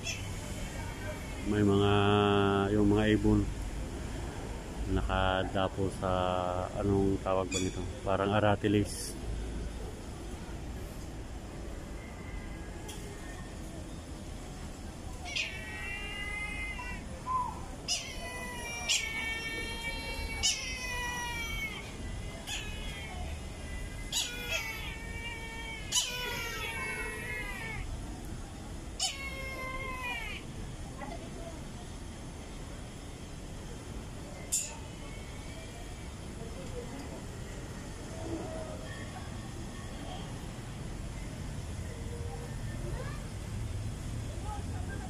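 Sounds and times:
low background rumble with hiss: 0.0s - 45.0s
bird of prey calling: 7.5s - 7.8s, 15.3s - 21.9s, 22.5s - 27.8s, 29.0s - 30.4s.

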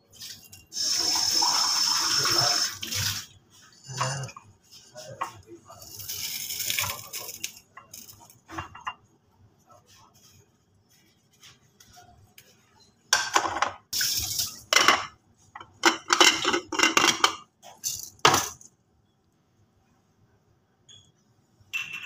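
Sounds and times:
spices rattling in glass jar: 5.8s - 8.3s.

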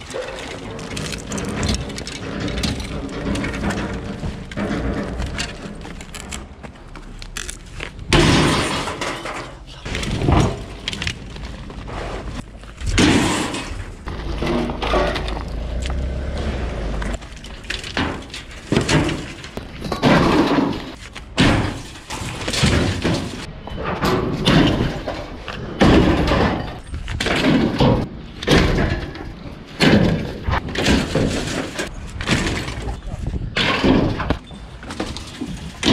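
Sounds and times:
metal junk crashing into skip: 8.1s - 10.8s, 12.8s - 15.4s, 17.8s - 33.0s.

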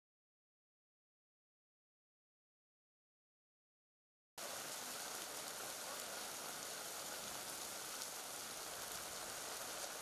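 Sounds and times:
rain falling steadily: 4.4s - 10.0s.

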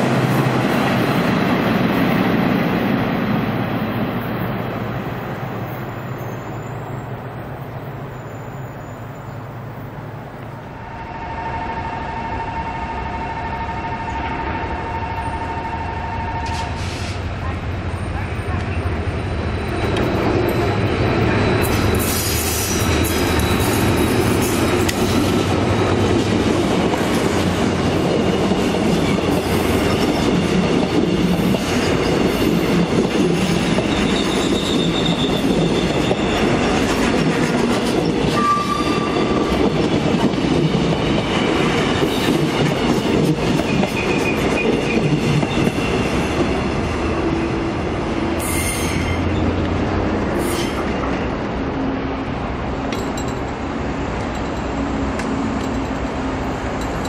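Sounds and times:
diesel locomotive engine passing: 0.0s - 57.0s
train wheel squeals: 5.6s - 10.0s, 17.9s - 25.8s, 28.0s - 47.6s, 48.4s - 49.6s, 50.3s - 51.1s.

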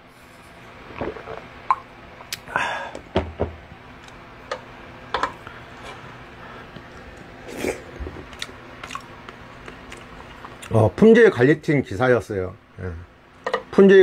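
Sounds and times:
breathy exhale: 2.5s - 3.0s.

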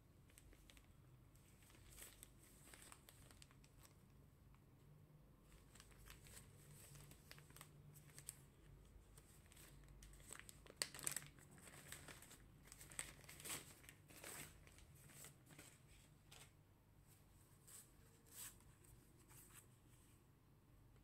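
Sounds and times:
plastic bag crinkling: 0.3s - 4.0s, 5.5s - 8.6s, 9.2s - 16.5s.

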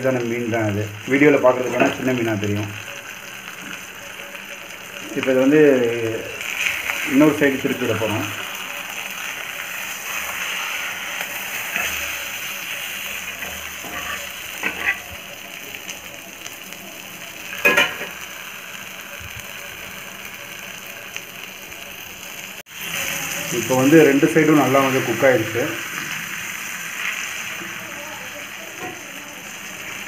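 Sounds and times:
fish sizzling in oil: 0.0s - 30.0s
metal spatula scraping: 1.5s - 15.4s.

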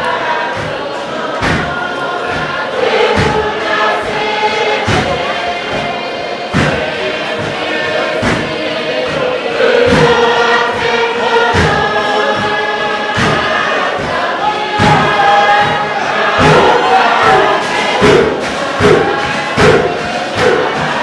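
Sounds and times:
large group singing: 0.0s - 21.0s
hands striking wooden box drum: 1.4s - 1.7s, 3.1s - 3.4s, 4.8s - 5.9s, 6.5s - 7.6s, 8.2s - 9.2s, 11.5s - 14.2s, 16.4s - 21.0s.

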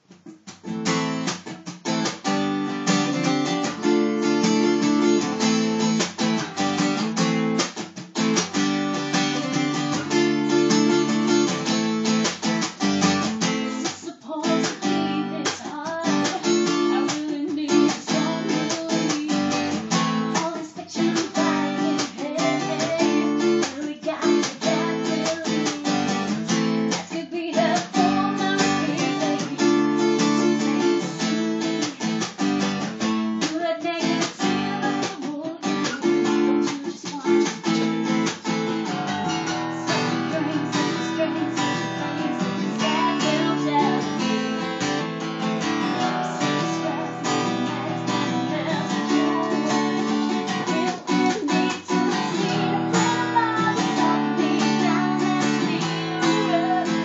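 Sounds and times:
acoustic guitar strumming: 0.0s - 57.0s
woman singing: 12.9s - 57.0s.

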